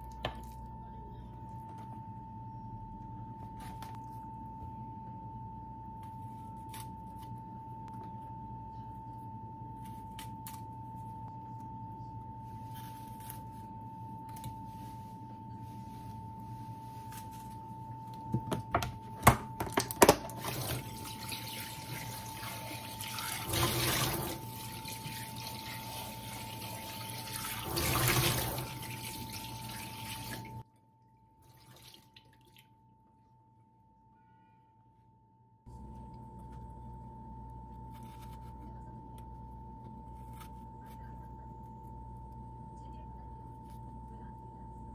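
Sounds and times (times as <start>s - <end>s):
water running into a steel sink: 20.3s - 30.6s.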